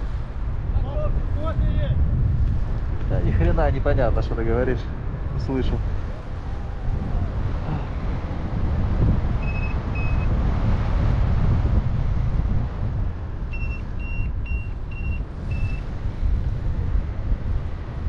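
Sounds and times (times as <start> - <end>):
wind rushing over microphone: 0.0 - 18.0
variometer beeping: 9.4 - 10.3, 13.5 - 15.9.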